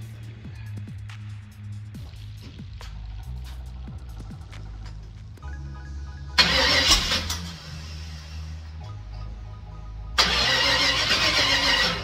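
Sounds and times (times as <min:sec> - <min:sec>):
car engine idling and revving: 0:00.0 - 0:12.0.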